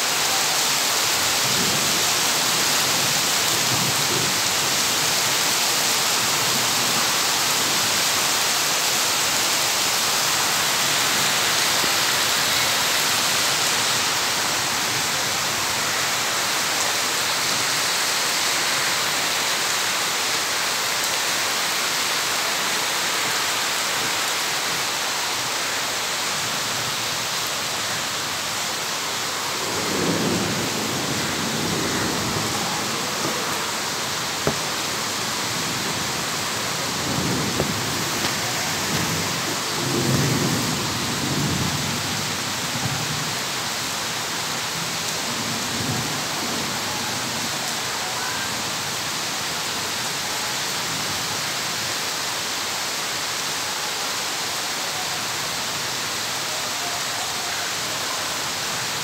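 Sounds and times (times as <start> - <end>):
steady rainfall: 0.0 - 59.0
low rumble of thunder: 29.6 - 33.7.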